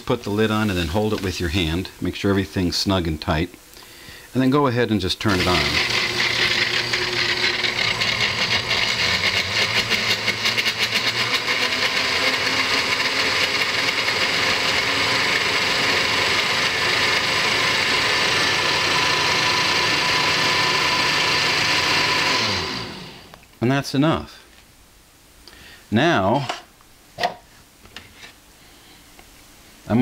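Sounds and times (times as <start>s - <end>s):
blender motor whirring: 5.3s - 23.4s.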